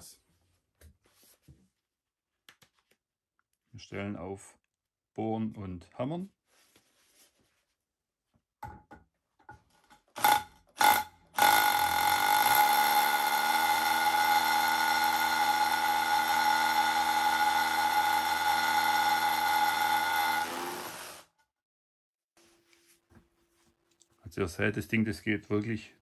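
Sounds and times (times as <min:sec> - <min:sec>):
rotary hammer drilling into concrete: 0:10.2 - 0:21.3.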